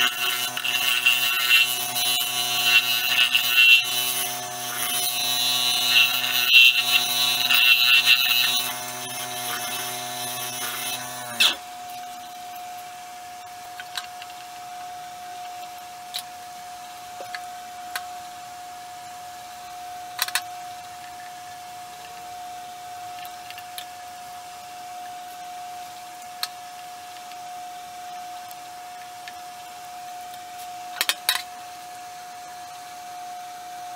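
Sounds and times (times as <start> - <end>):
faint steady tone: 11.6 - 33.9.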